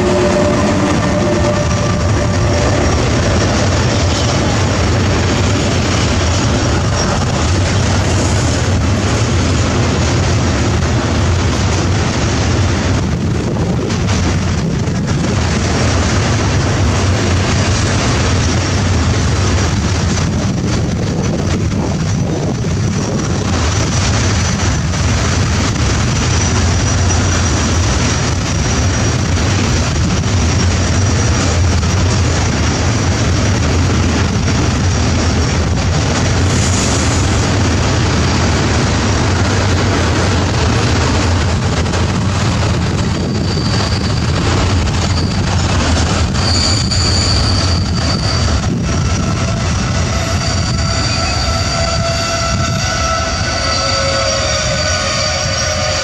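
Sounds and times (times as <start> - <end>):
train wheel squeals: 0.0 - 8.8, 21.3 - 38.6, 40.3 - 56.0
freight train wagons rumbling: 0.0 - 56.0.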